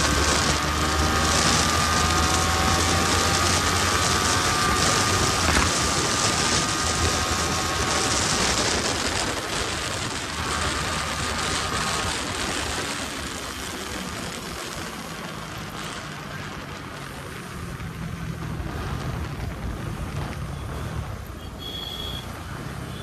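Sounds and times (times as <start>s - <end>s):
wind rush on microphone: 0.0s - 21.2s
motorcycle engine running: 0.0s - 23.0s.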